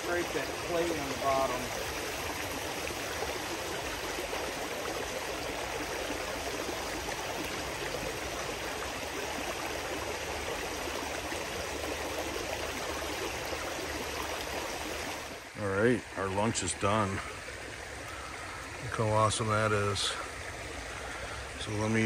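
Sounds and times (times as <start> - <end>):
water rushing over rocks: 0.0 - 22.0.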